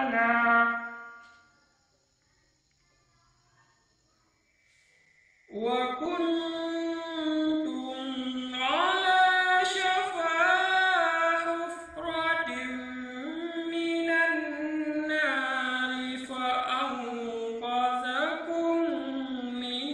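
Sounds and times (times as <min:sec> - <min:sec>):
man chanting melodically: 0:00.0 - 0:01.1, 0:05.5 - 0:19.9.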